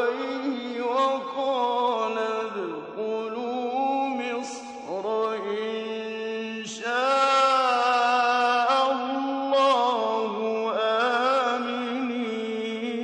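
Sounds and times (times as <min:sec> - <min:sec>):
man chanting recitation: 0:00.0 - 0:13.0.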